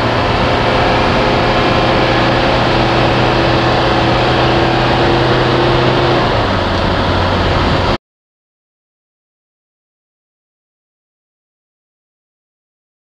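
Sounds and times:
diesel engine running: 0.0 - 8.0
road noise: 0.0 - 8.0.

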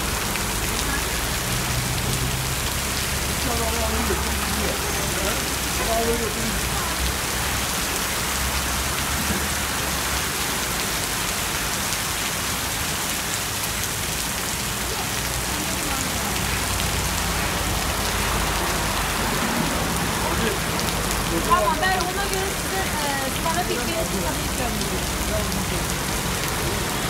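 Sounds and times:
heavy rain on pavement: 0.0 - 27.0.

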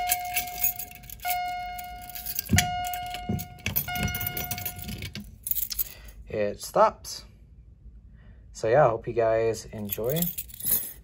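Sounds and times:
fire alarm chime ringing: 0.0 - 5.2
keys jangling: 0.0 - 6.2, 9.8 - 11.0.

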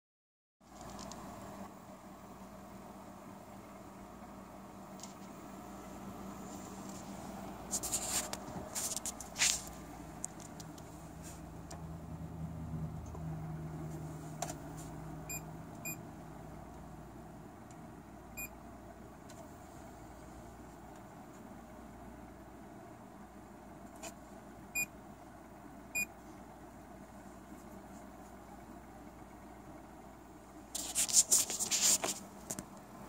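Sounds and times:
computer fans humming: 0.7 - 33.0
clicks and rustles: 7.7 - 10.9.

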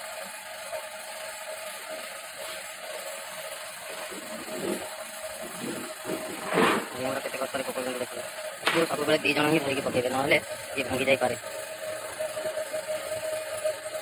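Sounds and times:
laminate sheet wobbling and rattling: 3.9 - 7.3
laminate sheet flapping down: 5.6 - 7.0.

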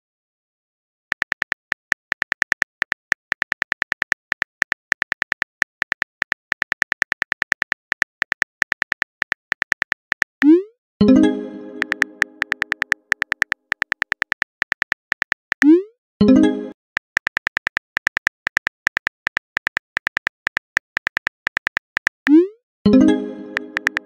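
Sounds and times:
phone keyboard typing clicks: 1.1 - 10.6, 11.8 - 15.8, 17.0 - 22.4, 23.5 - 24.0.

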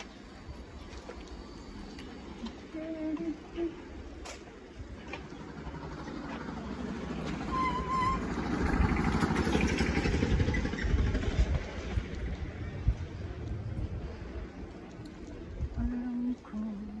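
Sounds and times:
small cart engine passing: 3.4 - 15.6.

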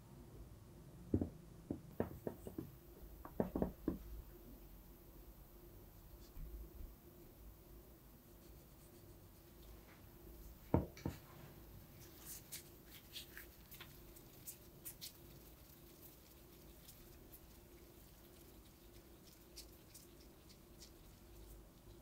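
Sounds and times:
sharp knocks: 1.1 - 4.0
gloved hands rolling truffle: 10.5 - 22.0.

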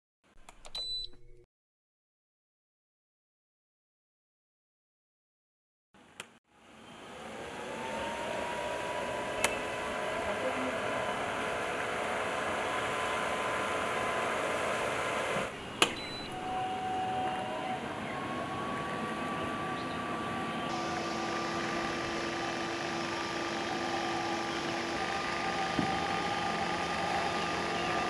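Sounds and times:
small fan motor whirring: 6.6 - 28.0.

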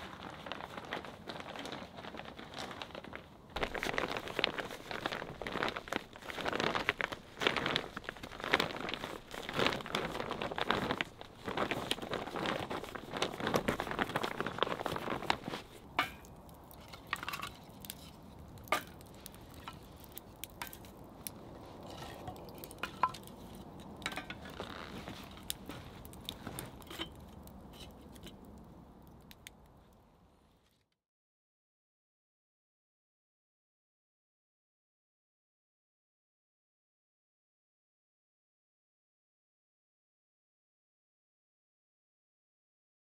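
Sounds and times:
plastic tarp crinkling: 0.0 - 27.2
wood fire crackling: 0.0 - 30.9.

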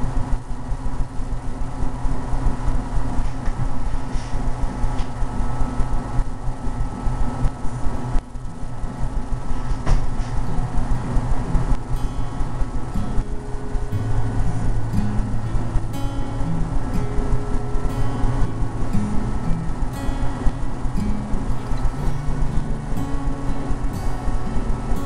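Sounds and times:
low mechanical rumble: 0.0 - 25.0
sustained low tone: 10.4 - 25.0.

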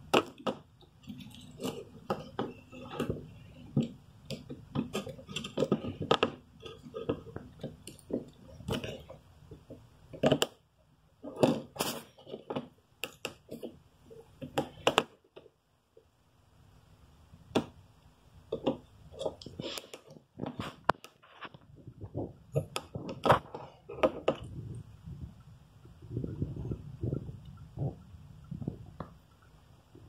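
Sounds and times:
phone parts clicking and scraping: 1.0 - 9.2.

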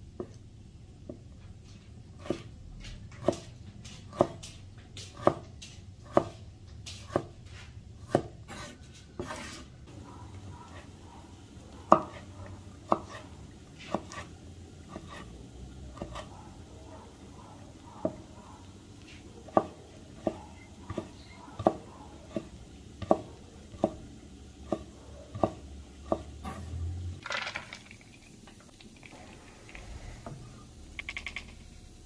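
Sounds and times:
knife chopping on cutting board: 1.1 - 9.7, 11.9 - 16.4, 18.0 - 18.4, 19.1 - 26.8
knife scraping board: 1.7 - 9.8, 12.9 - 15.4, 16.0 - 16.3.

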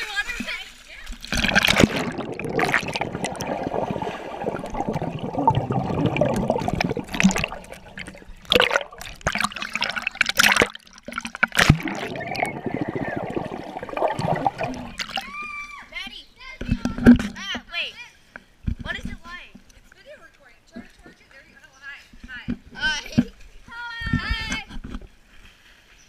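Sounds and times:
water splashes: 0.0 - 15.6
water bubbling and sloshing: 0.4 - 15.5.

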